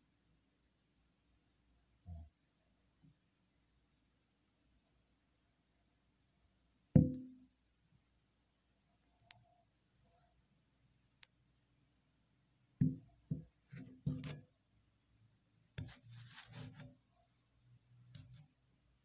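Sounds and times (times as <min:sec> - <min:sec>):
brief rustle: 0:15.8 - 0:16.9.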